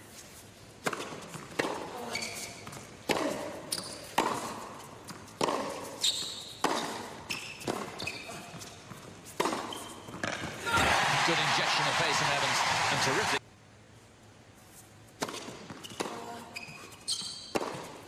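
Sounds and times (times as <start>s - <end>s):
tennis ball bouncing: 0.8s - 2.0s, 2.7s - 10.6s, 15.2s - 16.4s, 17.1s - 18.0s
shoe squeaks on court: 2.0s - 2.8s, 3.7s - 4.2s, 5.8s - 10.4s, 14.7s - 18.0s.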